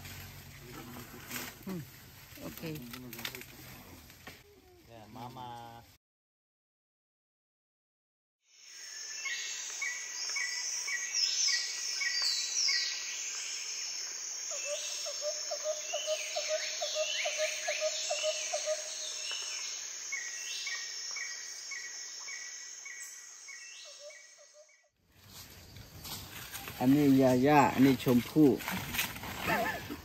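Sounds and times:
high insect drone: 0:08.6 - 0:24.3.

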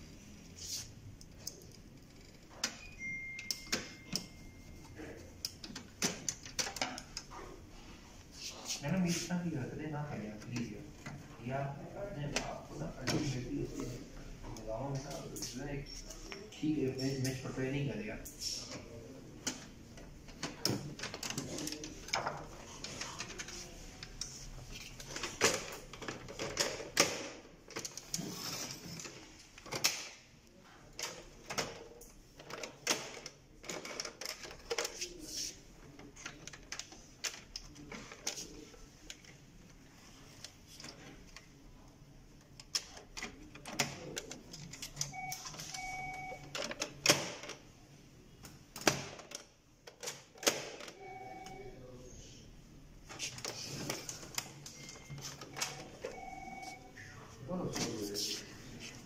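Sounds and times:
printer parts clicking and knocking: 0:05.4 - 0:07.3.

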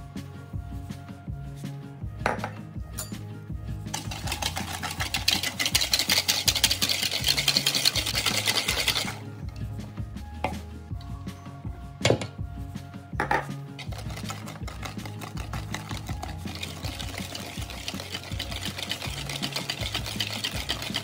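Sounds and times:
whisk clicking against bowl: 0:03.9 - 0:09.2, 0:13.8 - 0:21.0.

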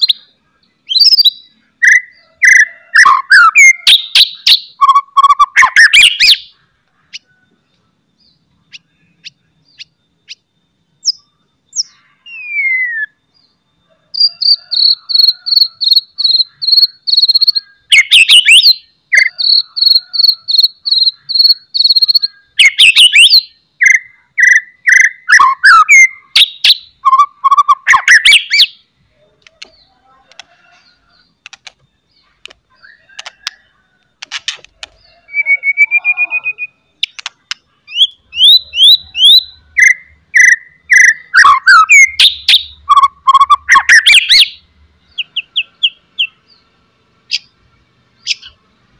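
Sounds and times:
songbird singing loudly: 0:00.0 - 0:48.9.

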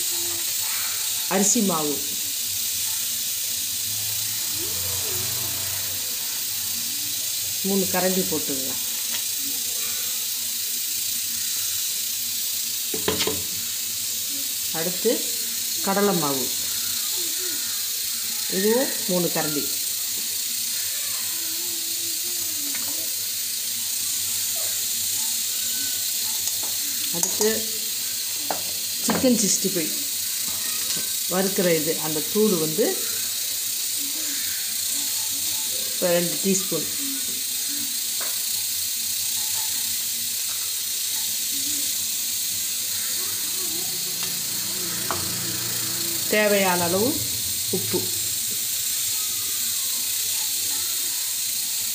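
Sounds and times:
steady hiss: 0:00.0 - 0:51.9
faint voices: 0:41.4 - 0:51.9.

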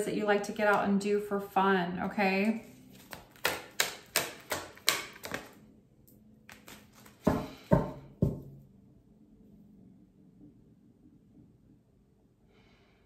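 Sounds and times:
cards being shuffled: 0:02.4 - 0:05.6, 0:06.4 - 0:07.4.

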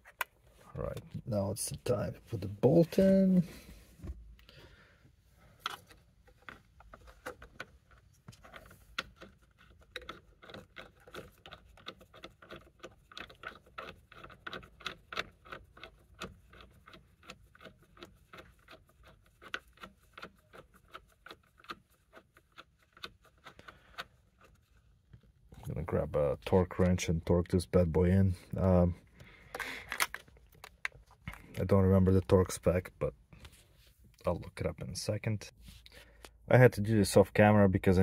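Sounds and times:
small metallic clicks and scrapes: 0:05.6 - 0:25.8.

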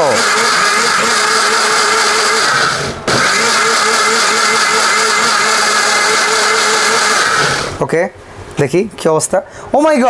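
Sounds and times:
mixer grinder motor whine: 0:00.0 - 0:07.8.

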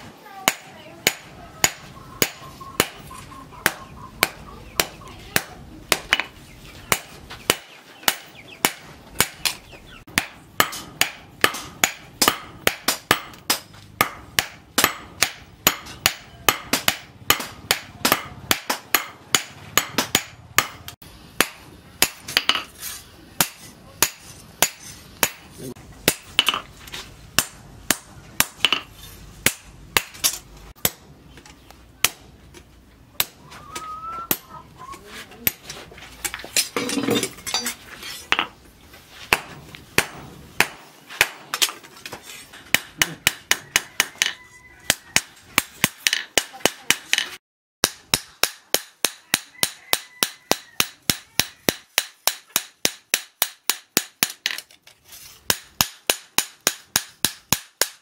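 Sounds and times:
hammer striking steel on anvil: 0:00.4 - 0:06.3, 0:06.9 - 0:22.7, 0:23.4 - 0:26.7, 0:27.3 - 0:31.0, 0:33.2 - 0:33.4, 0:34.3 - 0:34.5, 0:39.3 - 0:41.8, 0:42.6 - 0:54.6, 0:55.5 - 0:58.0.

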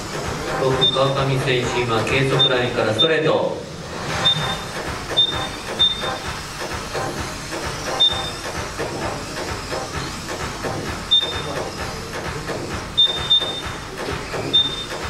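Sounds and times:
short high beeps: 0:00.8 - 0:01.2, 0:02.4 - 0:03.1, 0:04.2 - 0:06.3, 0:08.0 - 0:08.4, 0:11.1 - 0:11.7, 0:13.0 - 0:13.8, 0:14.5 - 0:15.0.

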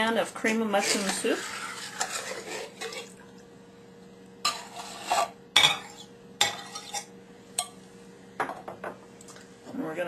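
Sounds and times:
metal spoon scraping a can: 0:00.8 - 0:02.9, 0:04.4 - 0:07.1.

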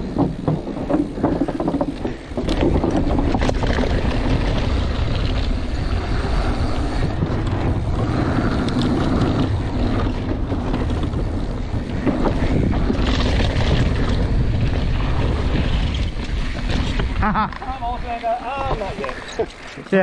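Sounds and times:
tyres clattering on wooden planks: 0:00.0 - 0:04.2
wind buffeting microphone: 0:00.0 - 0:19.6
bike rattling over bumps: 0:00.0 - 0:20.0
bike tyre rumble: 0:00.0 - 0:20.0.

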